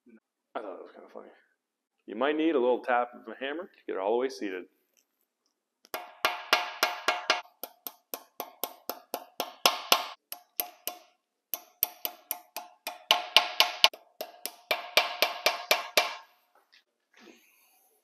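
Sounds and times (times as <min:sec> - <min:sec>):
small hammer tapping metal pins: 0:05.9 - 0:16.2.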